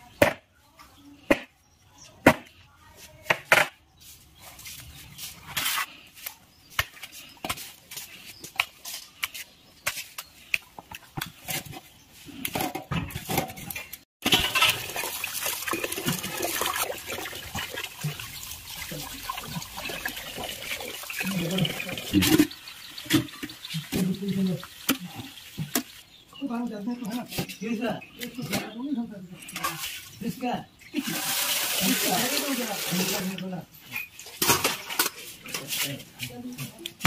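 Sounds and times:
water splashing in metal pot: 0:14.2 - 0:26.2, 0:31.0 - 0:33.4.

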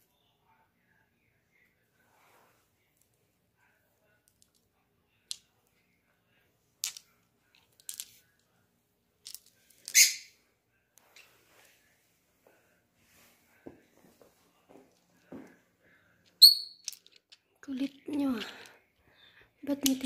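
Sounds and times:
crystal pendants clinking: 0:16.4 - 0:17.4.

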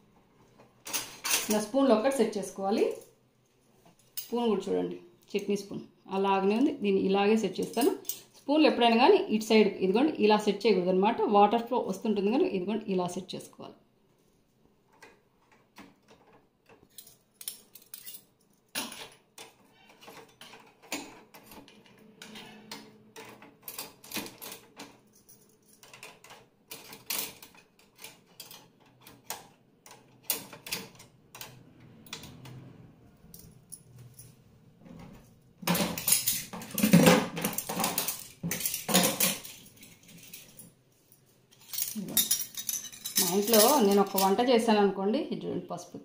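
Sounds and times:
steel dishes clattering: 0:35.6 - 0:40.6, 0:41.6 - 0:44.4
spoons clinking in cutlery rack: 0:41.6 - 0:44.4.

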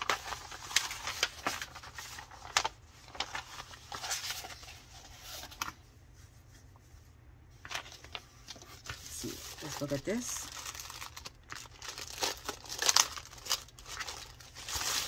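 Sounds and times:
packaging crinkling: 0:00.0 - 0:05.7, 0:07.6 - 0:15.0.

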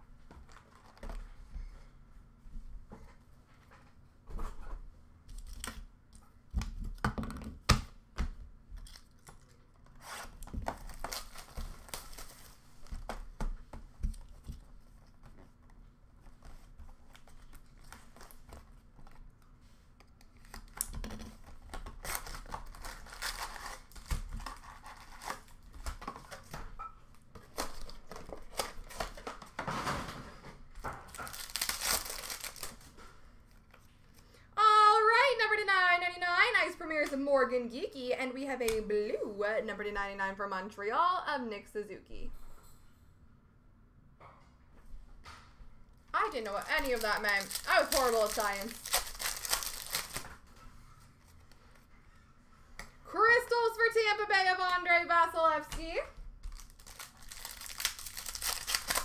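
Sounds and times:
card wrappers tearing and crinkling: 0:08.8 - 0:13.0, 0:20.3 - 0:25.8, 0:31.1 - 0:32.9, 0:46.2 - 0:50.4, 0:56.5 - 0:59.0.

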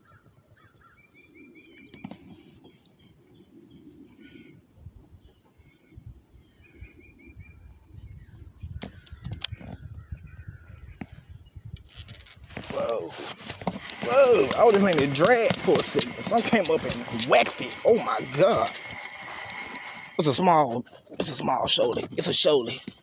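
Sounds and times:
birds chirping: 0:00.0 - 0:23.0
insect drone: 0:00.0 - 0:23.0
fishing reel clicks: 0:13.8 - 0:20.3.

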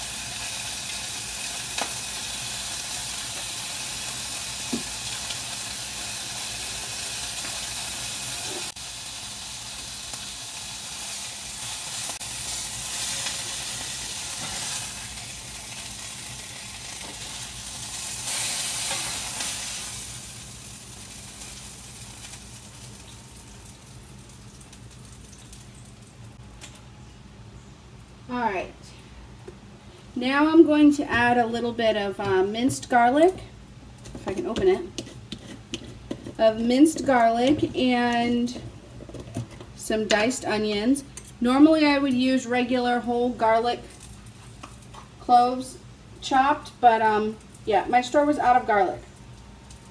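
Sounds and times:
chicken sizzling in hot oil: 0:00.0 - 0:26.4.

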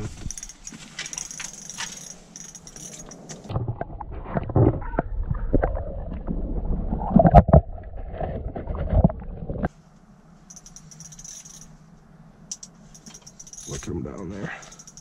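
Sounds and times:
faint steady hum: 0:09.0 - 0:15.0.

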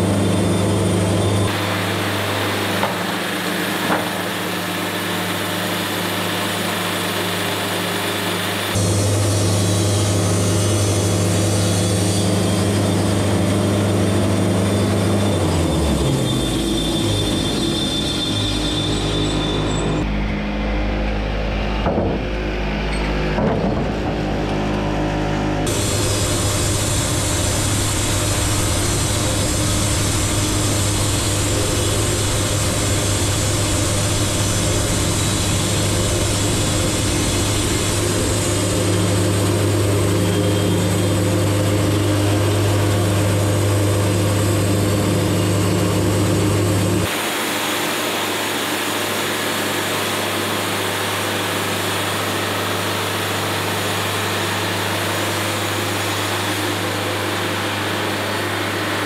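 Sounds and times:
bandsaw mill cutting wood: 0:00.0 - 0:59.0.

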